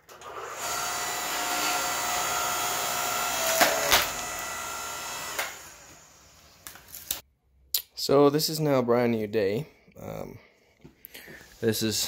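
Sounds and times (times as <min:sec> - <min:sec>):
log splitter motor whining: 0:00.1 - 0:07.0.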